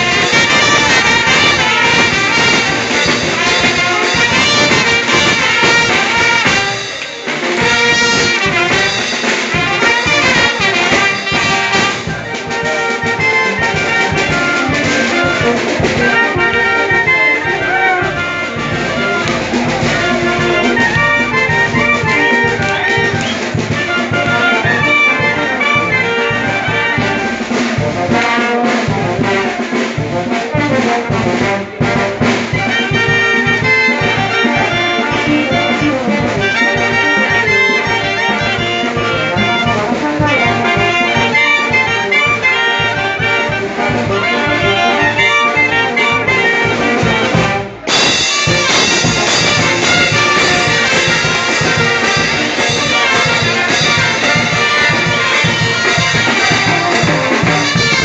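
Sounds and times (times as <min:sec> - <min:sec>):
brass band playing dance tune: 0:00.0 - 0:58.0
drum beat: 0:00.0 - 0:58.0.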